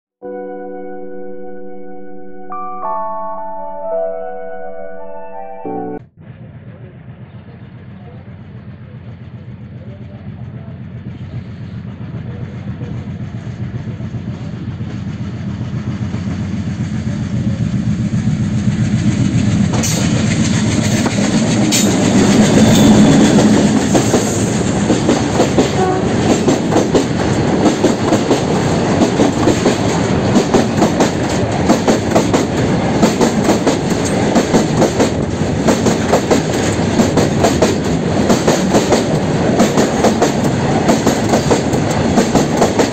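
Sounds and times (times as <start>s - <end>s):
diesel locomotive rumble: 6.2s - 42.9s
wheels clacking over rail joints: 18.8s - 42.9s.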